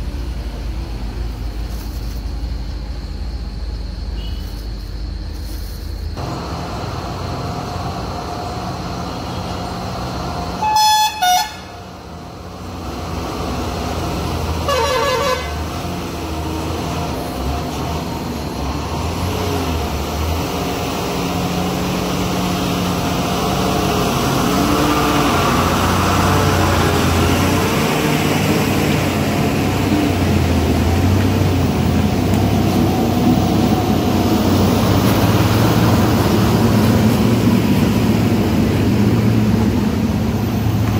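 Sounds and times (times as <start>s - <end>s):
diesel truck engines under load: 0.0s - 40.9s
truck horn blasts: 10.5s - 11.9s, 14.5s - 15.7s.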